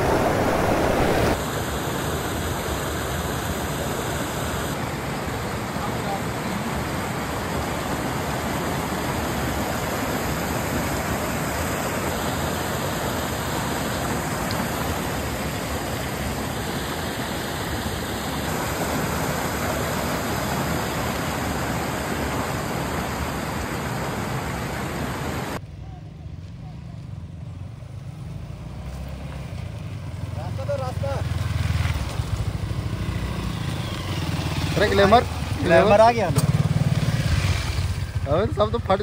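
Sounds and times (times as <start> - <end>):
water rushing down waterfall: 0.0 - 25.6.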